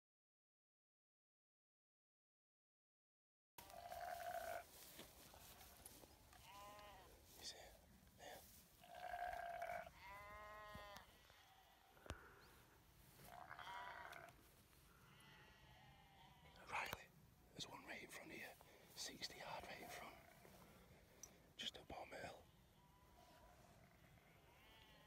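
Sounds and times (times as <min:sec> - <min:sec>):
faint sheep bleating: 0:03.6 - 0:12.6, 0:13.2 - 0:17.1, 0:19.2 - 0:20.7, 0:21.7 - 0:25.0.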